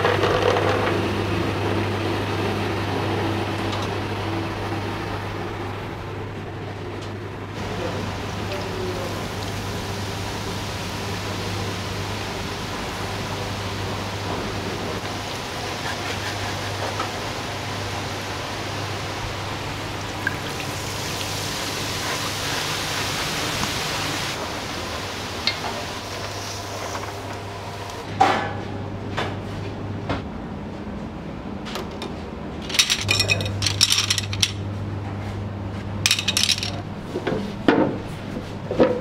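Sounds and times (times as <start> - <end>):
dishes and utensils clinking: 32.6 - 34.6, 36.1 - 36.8.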